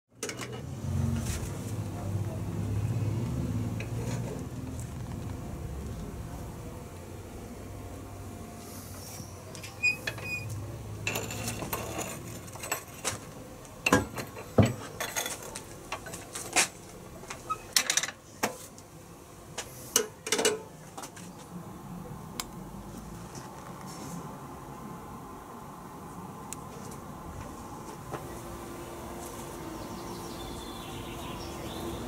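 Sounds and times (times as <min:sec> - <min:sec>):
metal kiln door opening and shutting: 0:09.6 - 0:13.2, 0:13.8 - 0:18.2.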